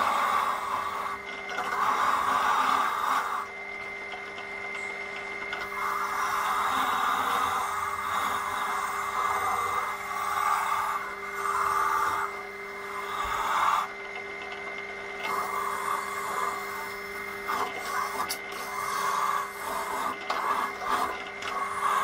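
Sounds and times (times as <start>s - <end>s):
drill press motor running: 0.0s - 22.0s
wire brush scrubbing metal: 15.2s - 22.0s.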